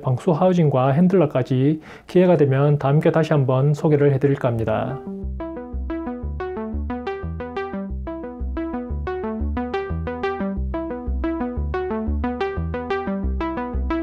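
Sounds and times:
synthesizer melody: 4.2 - 14.0
bass pulse: 5.2 - 14.0.

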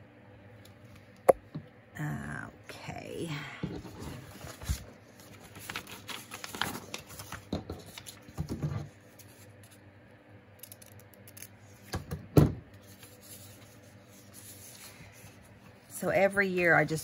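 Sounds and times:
paper rustling: 3.9 - 8.3.

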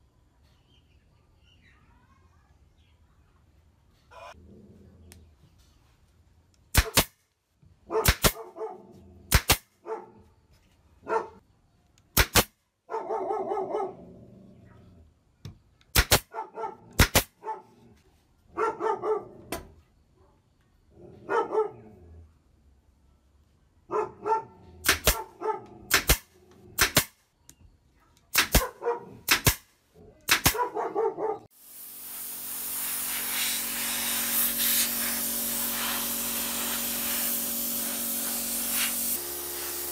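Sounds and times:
nail gun shots: 6.7 - 7.3, 8.0 - 8.5, 9.3 - 9.8, 12.1 - 12.6, 15.9 - 16.3, 17.0 - 17.4, 24.8 - 25.3, 25.9 - 27.2, 28.3 - 30.7
dog barking: 7.9 - 9.0, 9.8 - 10.3, 11.0 - 11.4, 12.9 - 14.1, 16.2 - 17.9, 18.5 - 19.5, 21.1 - 22.0, 23.9 - 25.9, 28.6 - 29.3, 30.1 - 31.5
spray gun hissing: 31.6 - 39.9.

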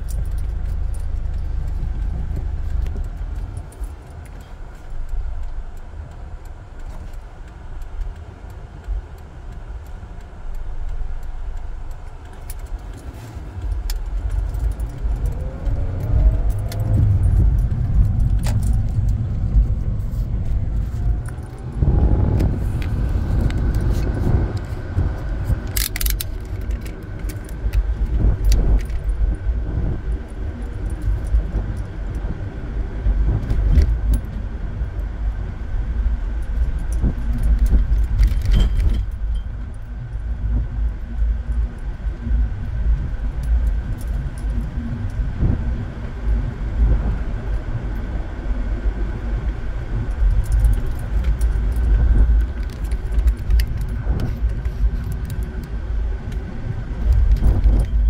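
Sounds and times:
rattling clicks and jingles: 0.0 - 5.9, 11.9 - 32.3, 36.4 - 45.6, 49.9 - 58.0
car engine and road rumble: 0.0 - 58.0.

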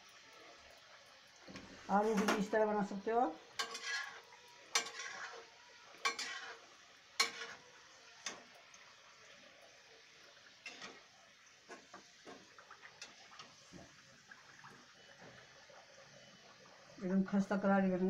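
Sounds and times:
frying oil hissing: 0.0 - 18.0
metal spoon clinking on a steel pan: 3.6 - 5.2, 6.0 - 6.6, 7.2 - 7.6.

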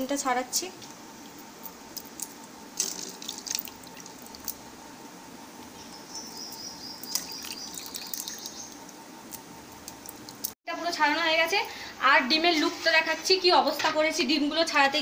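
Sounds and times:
eggshell crackling: 1.6 - 4.7, 6.3 - 10.6
water splashing and dripping: 2.8 - 4.6, 7.1 - 8.5.

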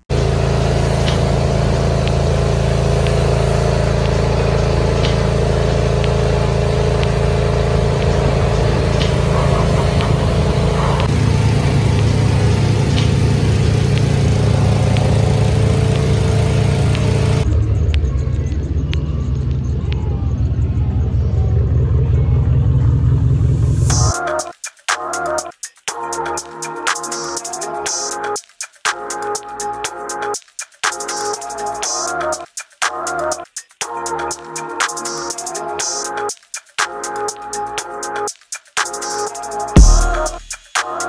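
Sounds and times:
engine running steadily: 0.0 - 18.1
lower engine rumble: 0.0 - 24.1.

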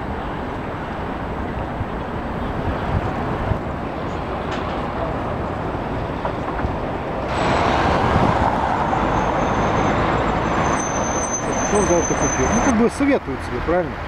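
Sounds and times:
street traffic: 0.0 - 14.0.

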